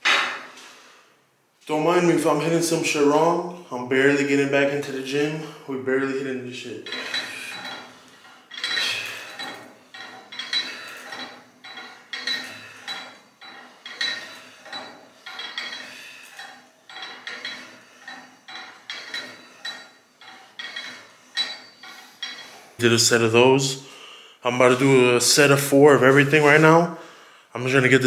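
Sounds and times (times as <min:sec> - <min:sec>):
weight plates clinking: 0:06.8 - 0:22.8.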